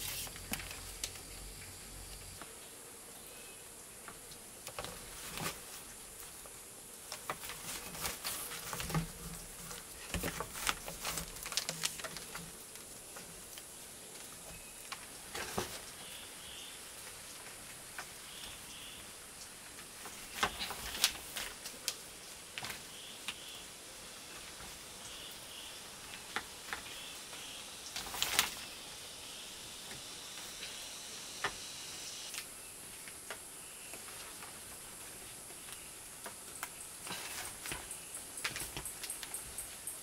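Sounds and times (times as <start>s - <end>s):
rustling scrape: 0.0s - 0.9s, 4.9s - 6.0s, 7.2s - 12.5s
steady high hiss: 0.0s - 40.0s.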